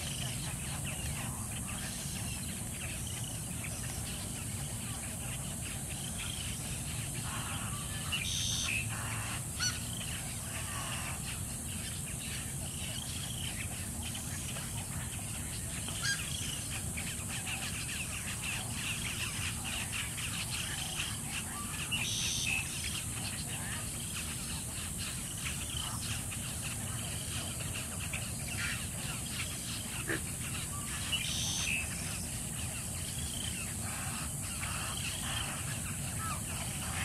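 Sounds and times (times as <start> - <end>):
steady high hiss: 0.0 - 37.0
wading birds calling: 0.0 - 37.0.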